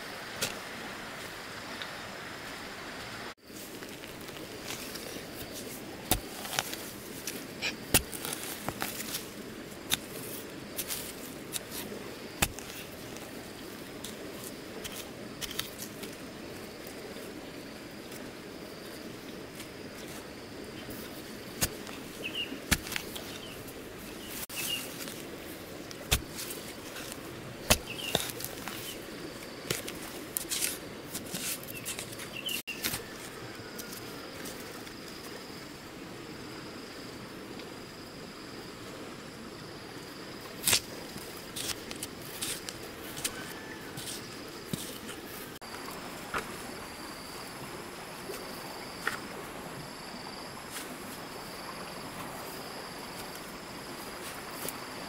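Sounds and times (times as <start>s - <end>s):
dirt scattering: 3.4s - 16.0s, 20.8s - 33.2s
insects trilling: 3.4s - 55.0s
hand tool chopping into soil: 3.8s - 13.4s, 14.0s - 16.0s, 21.5s - 23.6s, 24.3s - 29.0s, 29.6s - 33.1s, 40.6s - 40.9s, 41.5s - 45.2s.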